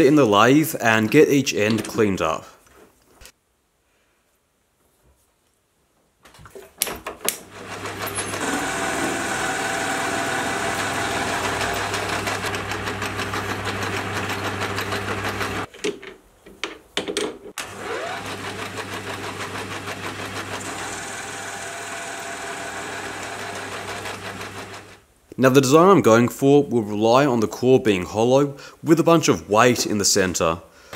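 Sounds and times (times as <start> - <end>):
metal lathe cutting steel: 7.6 - 15.7, 17.6 - 24.9.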